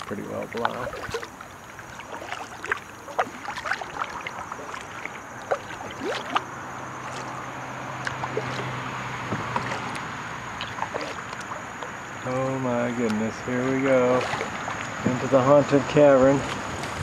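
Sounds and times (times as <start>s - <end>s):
water dripping off paddle: 0.0s - 12.0s, 13.0s - 15.5s.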